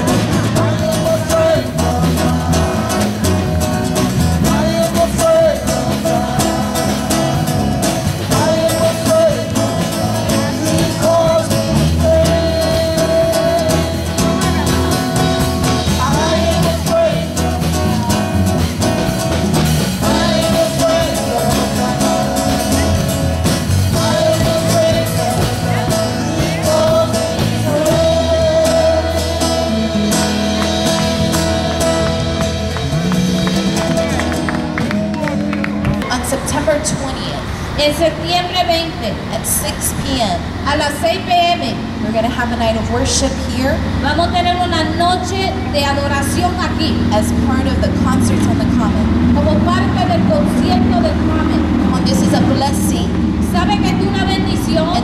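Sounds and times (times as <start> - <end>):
instrumental accompaniment with bass: 0.0 - 55.0
woman singing into a microphone: 4.4 - 7.6, 8.3 - 14.8, 15.8 - 17.8, 20.0 - 23.1, 23.8 - 29.7.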